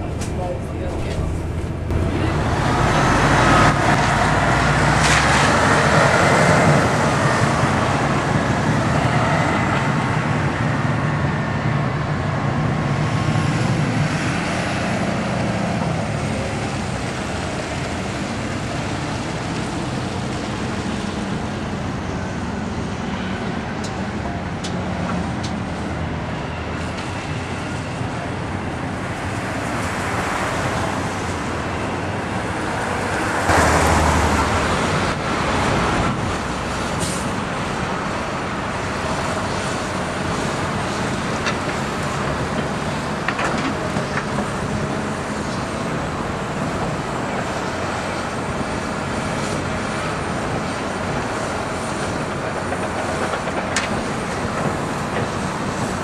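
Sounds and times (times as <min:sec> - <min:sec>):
engine rising in pitch: 0:00.0 - 0:07.5
diesel machinery running: 0:00.0 - 0:56.0
road traffic: 0:00.0 - 0:56.0.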